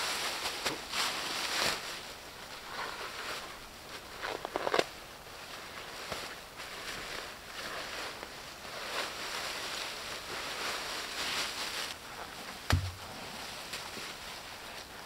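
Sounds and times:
dry leaves rustling and crackling: 0.0s - 15.0s
sharp thump: 12.7s - 13.2s.

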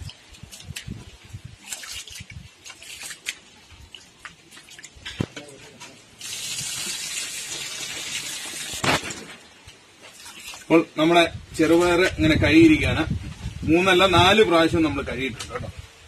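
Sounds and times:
hands swishing water in bowl: 0.0s - 5.1s, 10.0s - 10.7s
water pouring onto ground: 0.0s - 5.3s, 6.0s - 11.1s
small splashes and clicks: 0.0s - 10.7s.

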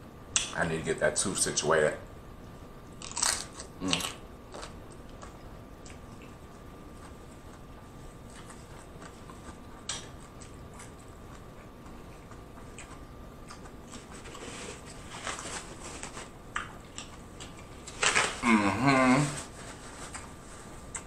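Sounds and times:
rustling of food containers: 13.9s - 16.4s.

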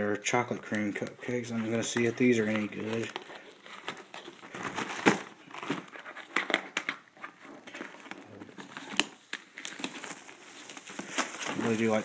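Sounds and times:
plastic shrink-wrap crinkling: 0.3s - 12.0s.

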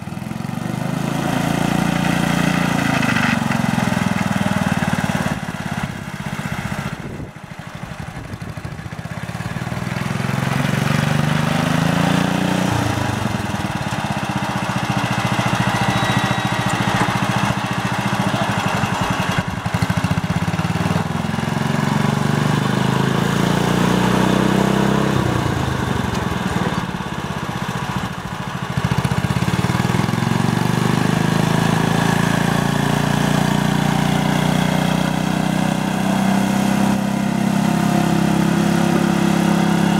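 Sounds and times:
small tractor engine revving: 0.0s - 39.9s.

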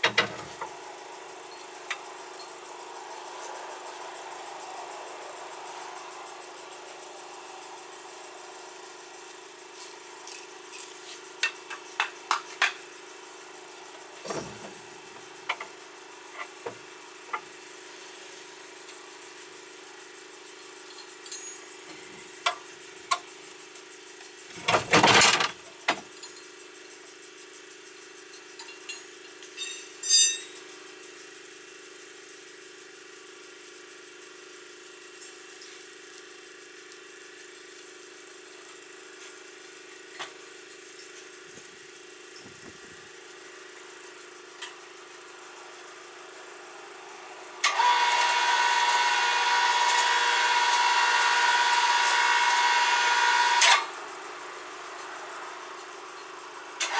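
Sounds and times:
metal clinks and knocks: 0.0s - 0.8s, 28.2s - 30.7s
steady low hum: 0.0s - 23.6s.

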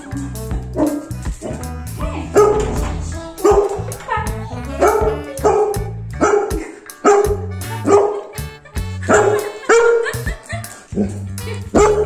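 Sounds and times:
dog barking: 2.4s - 2.6s, 3.4s - 3.8s, 4.8s - 8.3s, 9.0s - 10.1s, 11.7s - 12.0s.

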